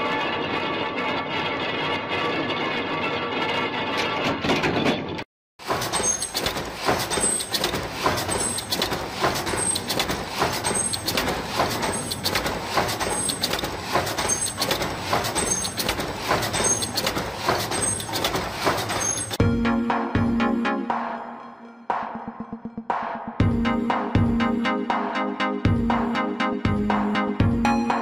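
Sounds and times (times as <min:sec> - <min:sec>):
bending levers clattering: 0:00.0 - 0:19.4
continuous machine noise: 0:05.6 - 0:19.4.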